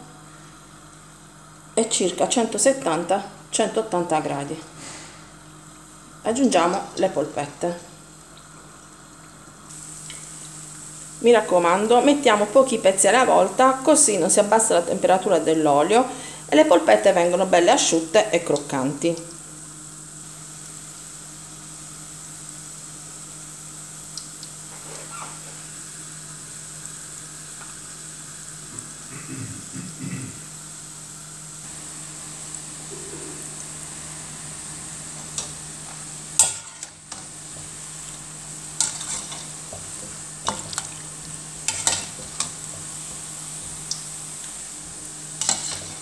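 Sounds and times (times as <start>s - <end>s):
oil sizzling and bubbling: 0.0s - 29.7s, 30.4s - 46.0s
metal skimmer scraping pan: 36.4s - 37.2s, 38.8s - 40.9s, 45.4s - 46.0s.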